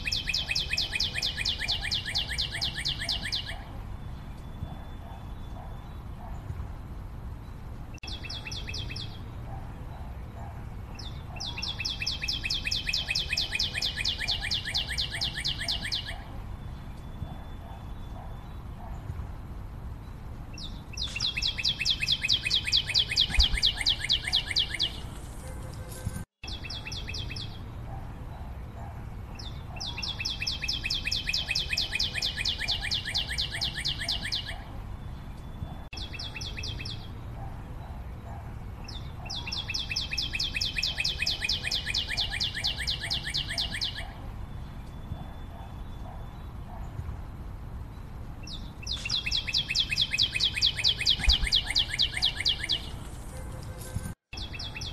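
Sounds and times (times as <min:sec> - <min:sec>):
bird trilling: 0:00.0 - 0:03.7, 0:11.0 - 0:16.3, 0:20.6 - 0:25.6, 0:29.4 - 0:34.7, 0:38.9 - 0:44.2, 0:48.4 - 0:53.1.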